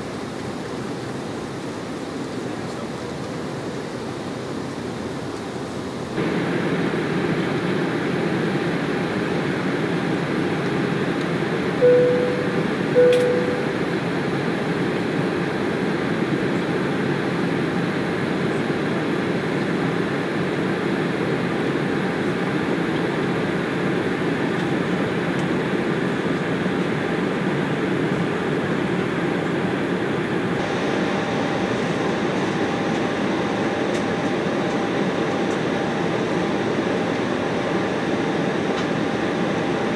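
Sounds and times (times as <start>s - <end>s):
airflow rush in jet cabin: 0.0s - 39.9s
jet engines humming: 0.0s - 39.9s
two-tone cabin chime: 11.8s - 14.0s.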